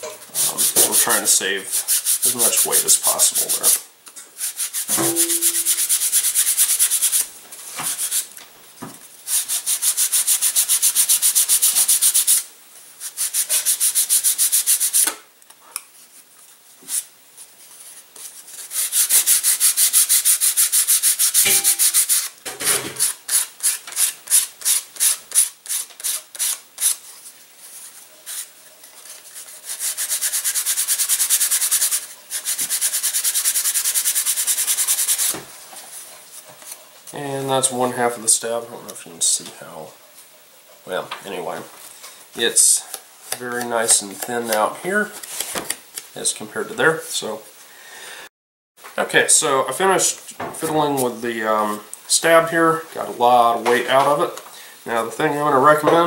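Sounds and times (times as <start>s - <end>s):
sandpaper rubbing on wood: 0.4s - 3.8s, 4.4s - 7.2s, 7.8s - 8.3s, 9.3s - 15.0s, 17.7s - 22.4s, 23.0s - 35.4s.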